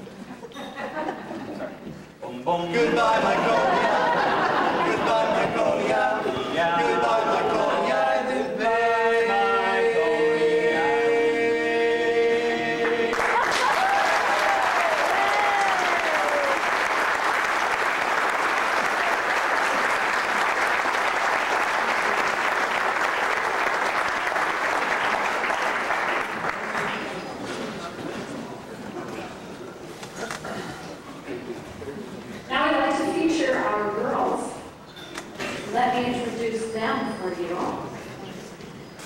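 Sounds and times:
men's a cappella group singing: 0:02.3 - 0:13.4
cheering calls: 0:12.8 - 0:25.6
audience applause: 0:12.8 - 0:27.9.

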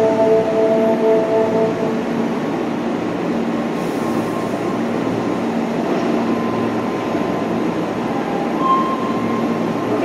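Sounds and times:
subway wheels on rail: 0:00.0 - 0:10.0.

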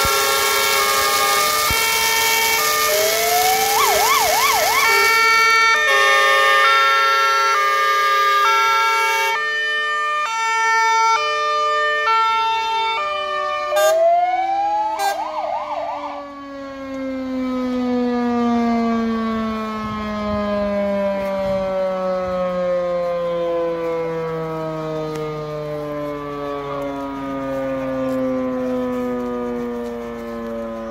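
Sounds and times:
fire engine siren: 0:00.0 - 0:30.9.

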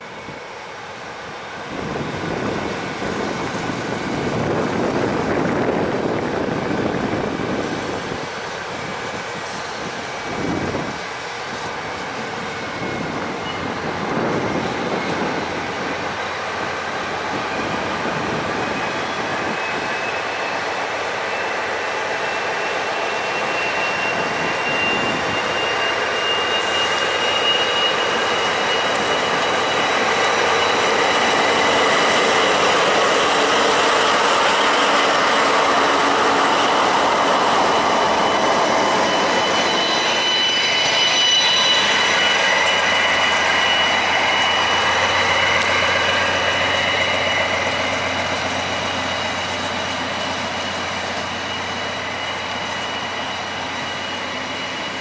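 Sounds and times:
diesel locomotives passing: 0:00.0 - 0:55.0
train coaches rolling past: 0:00.0 - 0:55.0
thin high whine: 0:22.6 - 0:55.0.

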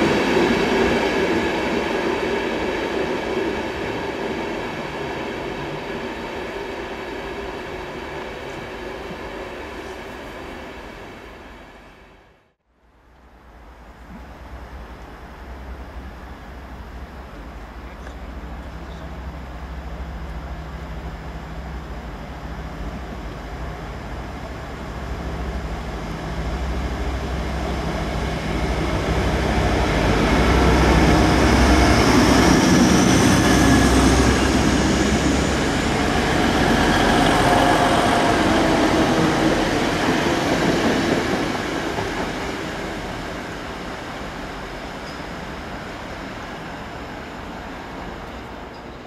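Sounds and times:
diesel train engines: 0:00.0 - 0:49.0
train wheels on track: 0:13.2 - 0:49.0.

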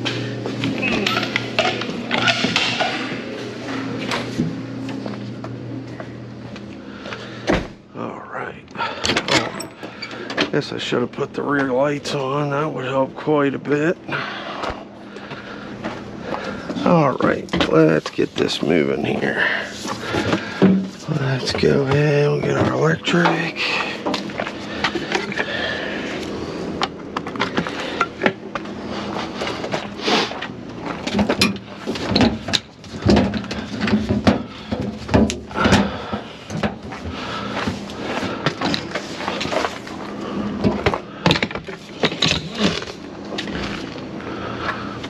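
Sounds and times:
machine hum: 0:00.0 - 0:45.0
knocks and clanks of handling: 0:29.3 - 0:44.1.

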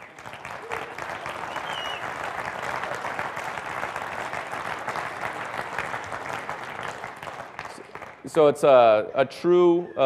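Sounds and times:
audience applauding: 0:00.0 - 0:08.8
short whistle: 0:01.5 - 0:02.0.

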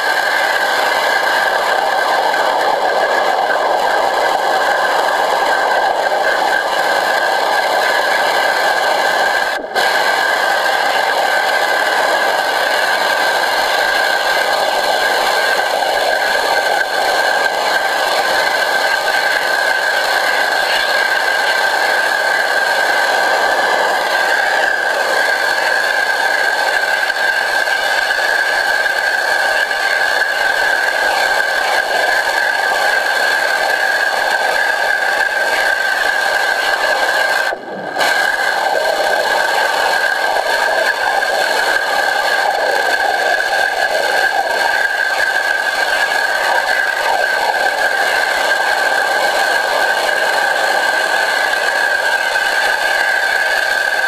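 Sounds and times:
pressure washer spraying underwater: 0:00.0 - 0:54.0
steady high whine: 0:00.0 - 0:54.0.

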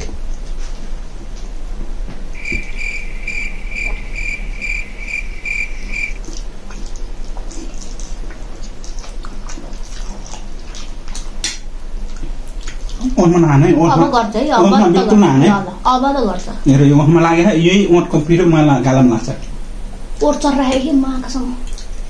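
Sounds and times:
high repeating chirp: 0:02.4 - 0:06.2.

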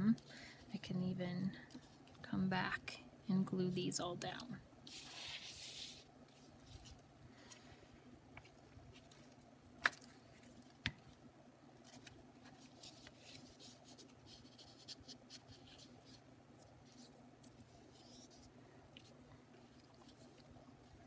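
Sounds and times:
paper rubbing and scraping: 0:04.9 - 0:07.0, 0:11.9 - 0:16.2.

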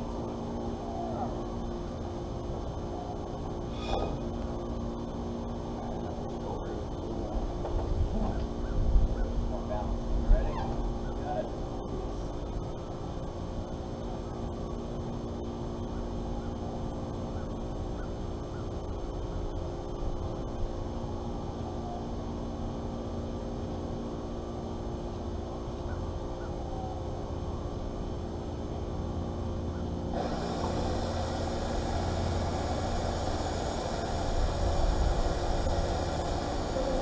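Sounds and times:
machinery hum with low rumble: 0:00.0 - 0:37.0
broad rushing noise: 0:30.1 - 0:37.0.

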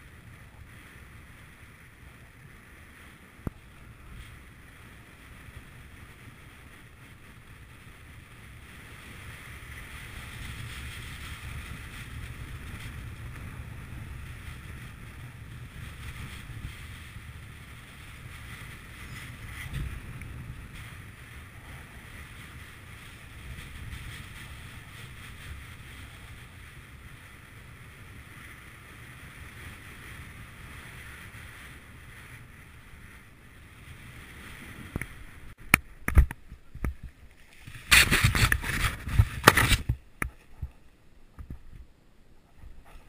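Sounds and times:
wind rushing over microphone: 0:00.0 - 0:43.0
parachute canopy buffeting: 0:08.6 - 0:35.6, 0:36.4 - 0:40.7.

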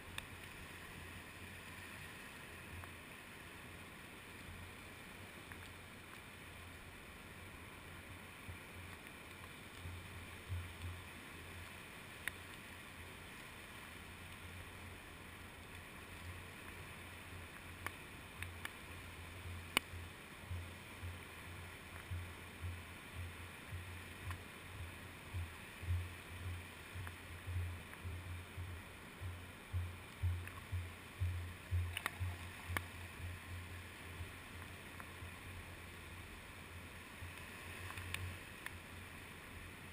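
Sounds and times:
sharp ticks: 0:25.4 - 0:33.5.

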